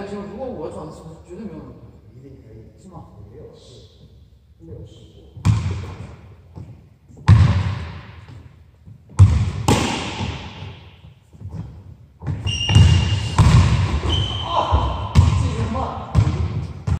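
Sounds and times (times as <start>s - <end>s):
basketball bouncing on hardwood floor: 5.4s - 10.8s, 11.4s - 16.9s
short high squeak: 12.4s - 13.4s.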